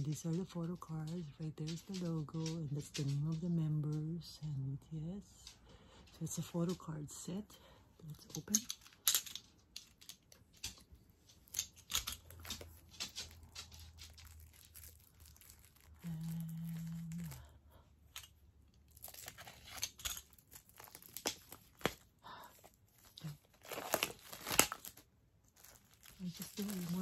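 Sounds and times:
low steady hum: 0.0 - 27.0
plastic shrink-wrap crinkling: 8.0 - 27.0.

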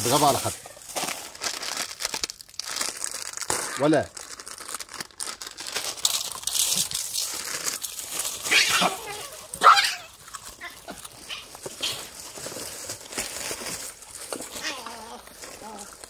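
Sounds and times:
baboons screeching: 8.4 - 12.1, 14.5 - 15.9.

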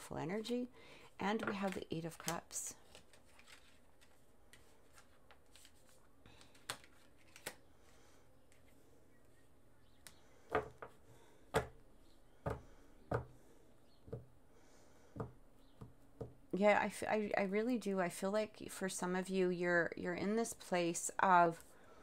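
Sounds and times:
cards tapping on a table: 10.5 - 11.0, 11.6 - 11.8.

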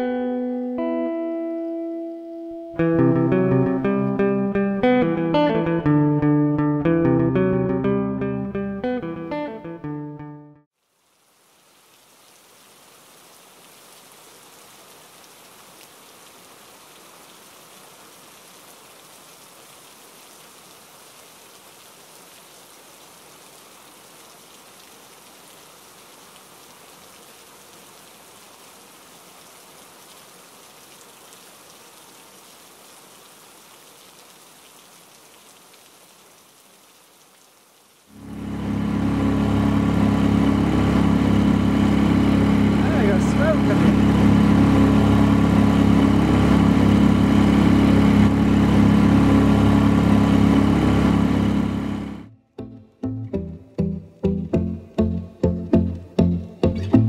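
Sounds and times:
rain falling on hard ground: 10.7 - 38.3.

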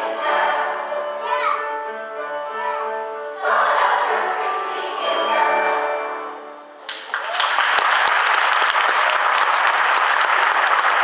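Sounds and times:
children's choir chord: 0.0 - 6.7
audience applause: 6.9 - 11.0.

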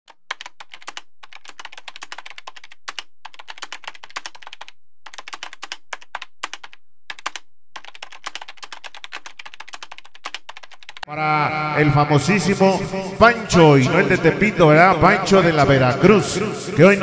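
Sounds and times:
rapid keyboard clicking: 0.1 - 11.1.

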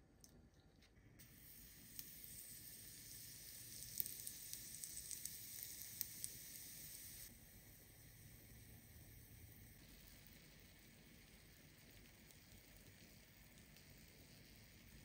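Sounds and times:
crackling pops: 1.2 - 7.3
batter sizzling in a skillet: 1.2 - 15.0.

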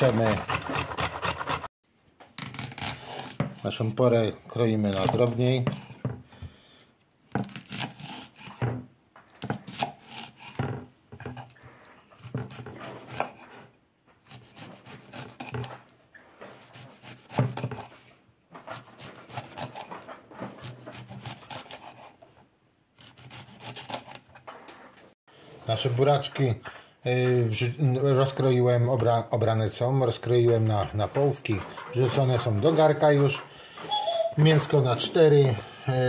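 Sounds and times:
knife chopping on wooden board: 7.3 - 11.5, 12.2 - 13.4, 14.2 - 15.8, 16.5 - 22.1.

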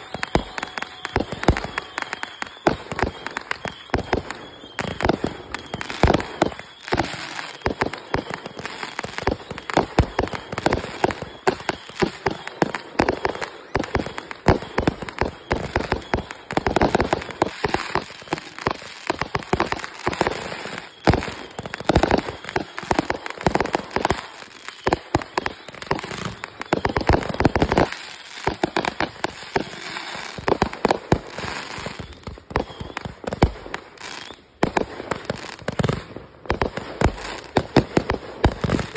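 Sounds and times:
fireworks barrage bangs: 0.0 - 38.9.

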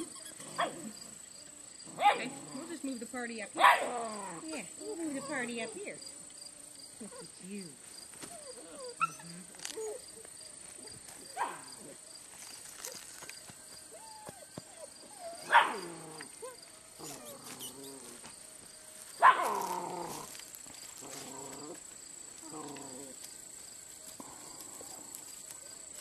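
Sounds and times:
puppies growling: 0.0 - 6.0, 8.2 - 12.1, 13.9 - 18.3, 19.2 - 26.0
puppy barks falling in pitch: 19.2 - 19.6.

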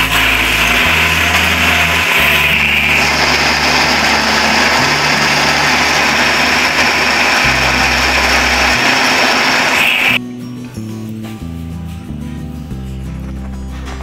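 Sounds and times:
blender motor whirring: 0.0 - 10.2.

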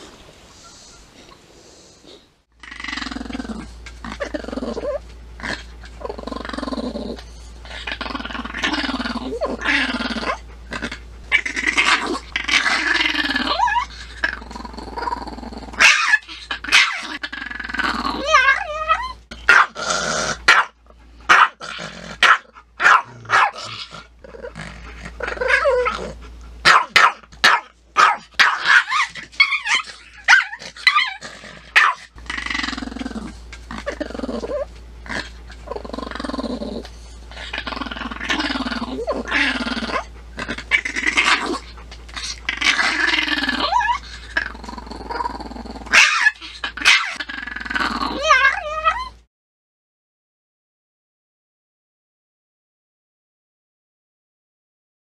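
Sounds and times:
dog growling: 2.6 - 49.2
dog yapping barks: 15.8 - 17.0, 19.5 - 19.8, 20.5 - 21.6, 22.2 - 23.6, 26.6 - 31.1, 31.7 - 32.1, 45.9 - 47.2.

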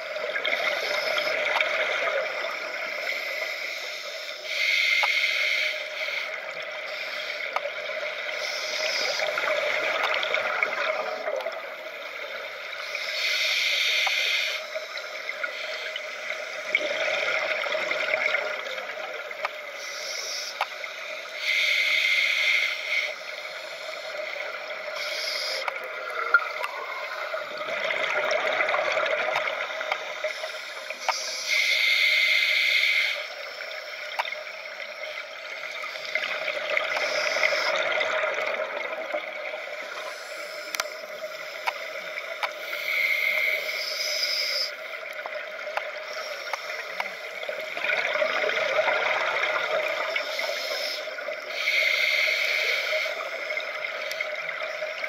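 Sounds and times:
exhaled bubbles gurgling underwater: 0.0 - 3.8, 6.1 - 13.1, 13.9 - 32.2, 33.3 - 55.0
regulator breath hiss: 2.9 - 7.5, 8.2 - 9.6, 12.8 - 16.7, 19.6 - 25.8, 29.7 - 34.0, 35.0 - 37.8, 39.8 - 41.9, 42.5 - 45.0, 46.0 - 47.7, 50.0 - 53.5.

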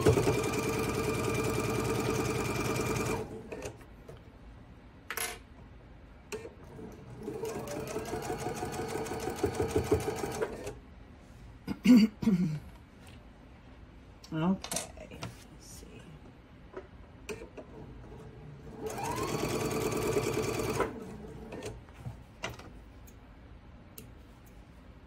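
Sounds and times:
sewing machine stitching: 0.0 - 3.8, 6.4 - 10.8, 18.7 - 21.8.

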